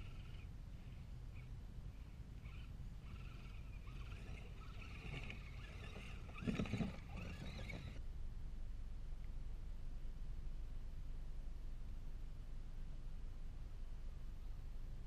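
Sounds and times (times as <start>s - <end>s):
toy truck motors whining: 2.4s - 8.0s
tyres in mud: 3.1s - 8.0s.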